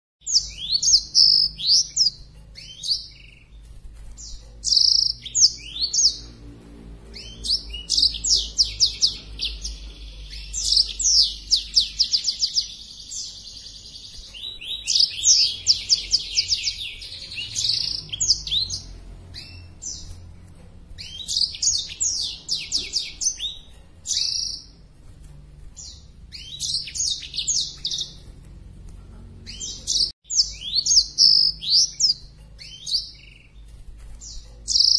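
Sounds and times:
canary singing chirps and trills: 0:00.2 - 0:34.9.

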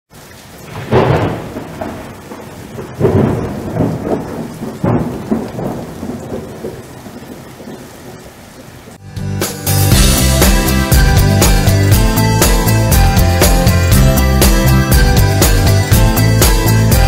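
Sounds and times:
steady rain: 0:00.1 - 0:17.0
thunder claps rumbling: 0:00.5 - 0:08.8.

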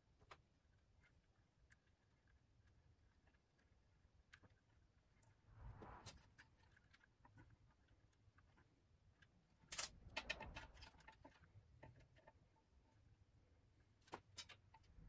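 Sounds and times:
wires rustling: 0:01.0 - 0:13.2.

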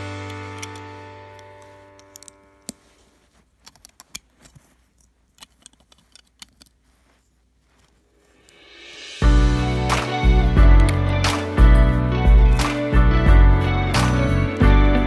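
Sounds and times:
plastic bricks clicking: 0:05.4 - 0:06.8.

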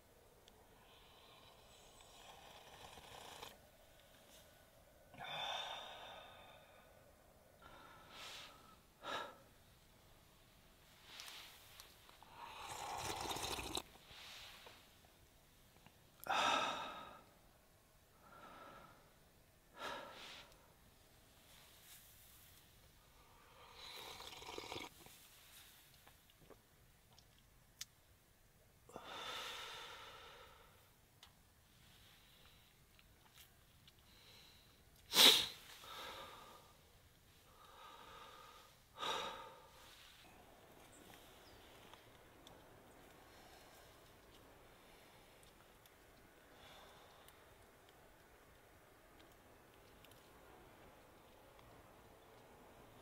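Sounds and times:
person breathing out and sighing: 0:05.1 - 0:07.0.

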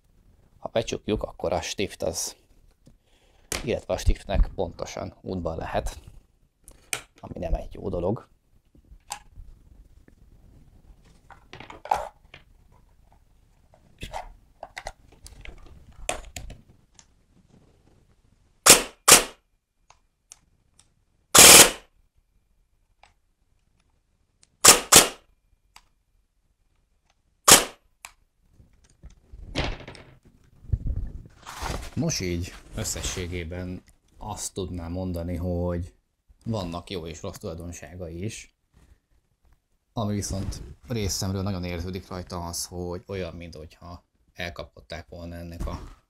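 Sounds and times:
airsoft rifle shots: 0:18.6 - 0:19.4, 0:21.4 - 0:21.9, 0:24.6 - 0:25.2, 0:27.5 - 0:27.8.

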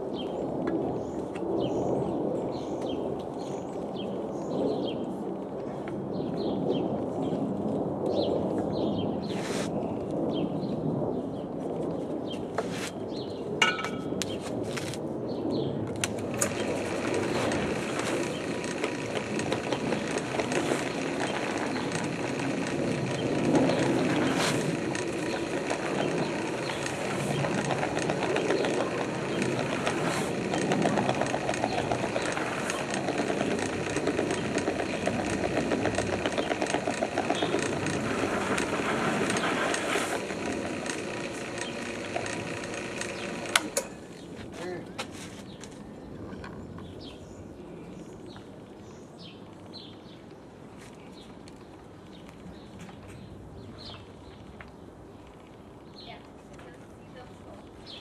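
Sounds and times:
sharp clicks: 0:15.9 - 0:44.0
drill press churning dough: 0:16.1 - 0:44.0.

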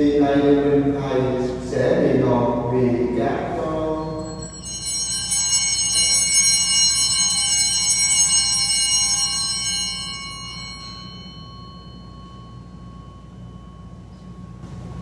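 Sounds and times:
bell ringing: 0:03.4 - 0:14.6.

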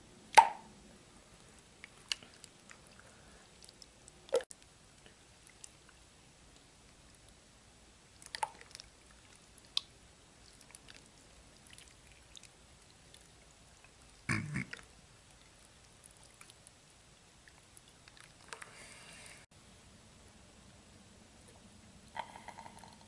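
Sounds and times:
wet plop: 0:00.4 - 0:00.6
slime squelching: 0:08.1 - 0:19.0.

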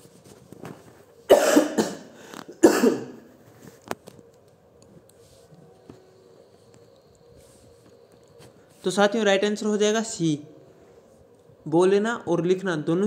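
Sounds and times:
man coughing: 0:01.3 - 0:03.3.

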